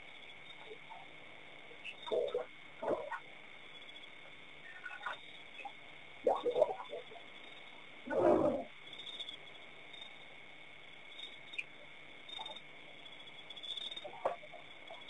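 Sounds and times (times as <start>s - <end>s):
faint chirps and clicks: 1.7s - 7.8s, 11.2s - 15.0s
loud low animal call: 8.1s - 8.7s.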